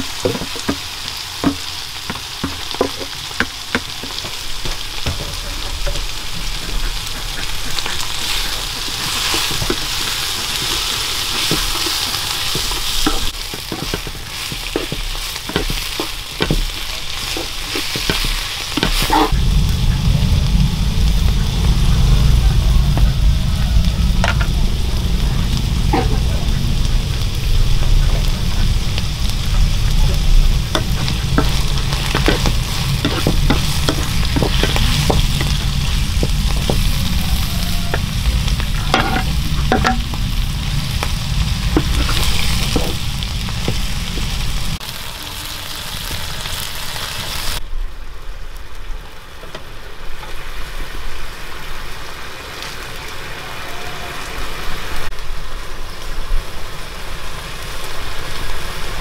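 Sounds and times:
wooden spatula scraping a pan: 0.0 - 19.3, 29.8 - 44.4
noodles sizzling in a wok: 0.0 - 59.0
low rumble: 18.3 - 45.0.

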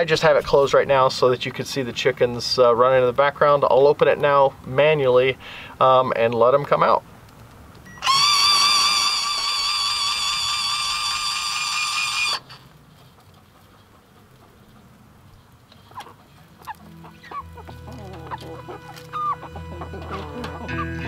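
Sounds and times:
hens clucking: 8.0 - 21.0.

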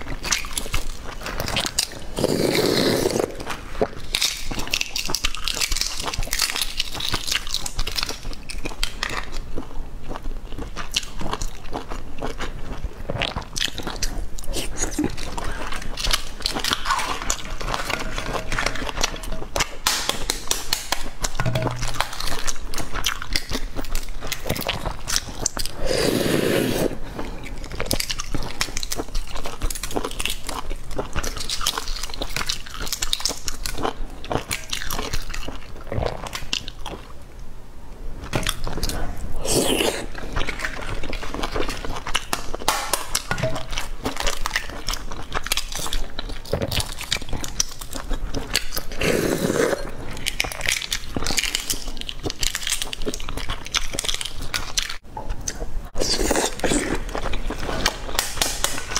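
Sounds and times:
eggshells cracking and peeling: 0.0 - 9.6, 13.3 - 25.8, 39.4 - 49.1, 56.0 - 58.9
biting and chewing: 0.0 - 37.2, 38.2 - 58.9.

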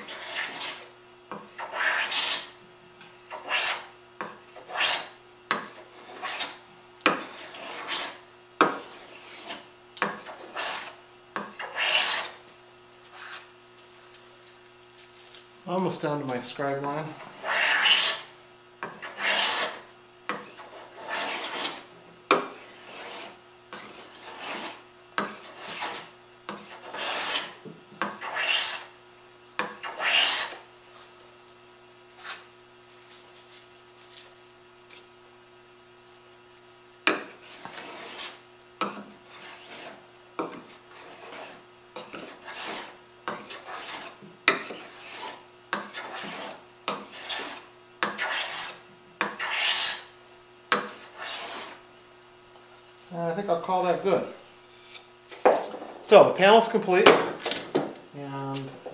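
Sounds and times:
hand plane cutting wood: 0.0 - 0.9, 1.6 - 2.5, 3.3 - 3.9, 4.6 - 5.2, 5.8 - 12.4, 17.3 - 19.8, 20.4 - 28.9, 29.8 - 30.6, 37.2 - 38.4, 39.3 - 50.1, 50.8 - 51.8.

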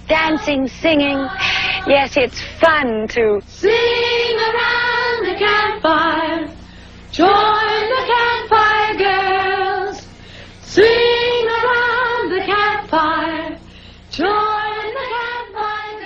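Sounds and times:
woman singing: 0.0 - 6.6, 7.2 - 10.0, 10.7 - 13.6, 14.2 - 16.0.

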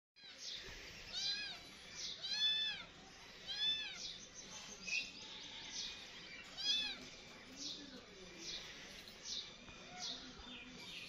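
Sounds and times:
kitten meowing: 2.2 - 2.8.

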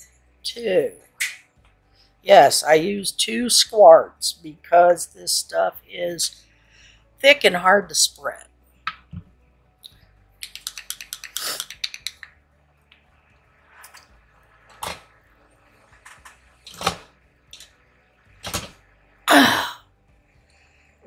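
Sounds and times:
objects clicking on a desk: 10.4 - 12.4.

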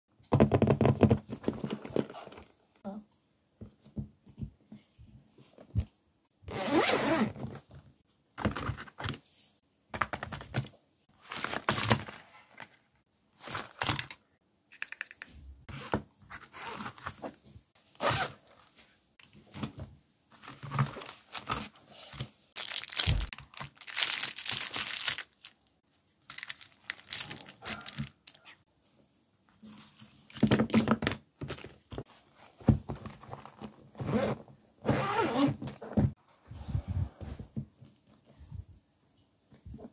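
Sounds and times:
zipper opening and closing: 6.5 - 7.6, 15.7 - 17.3, 17.9 - 18.7, 33.9 - 37.1
pencils being handled: 10.0 - 15.4, 20.3 - 28.5.

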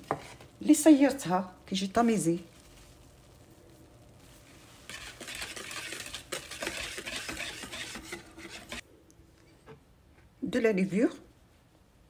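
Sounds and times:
whisk beating batter in bowl: 4.6 - 8.8
whisk wires clicking on bowl: 4.9 - 8.8.

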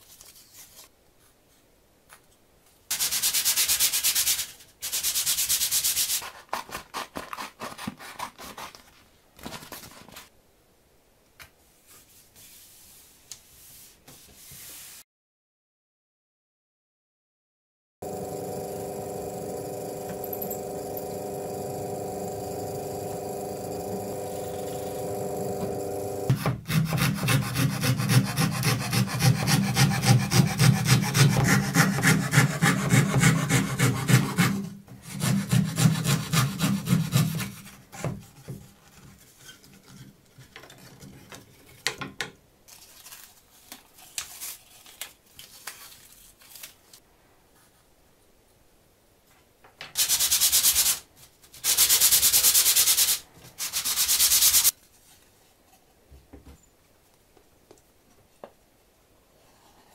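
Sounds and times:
drill press motor humming: 18.0 - 26.3
scroll saw cutting plywood: 18.0 - 37.6.

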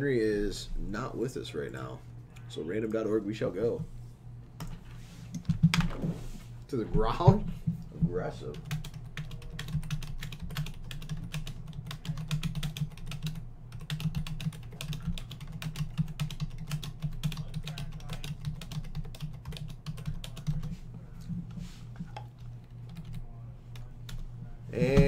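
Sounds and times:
steady low hum: 0.0 - 25.0
fast typing on keyboard: 8.5 - 20.7, 22.9 - 23.2.

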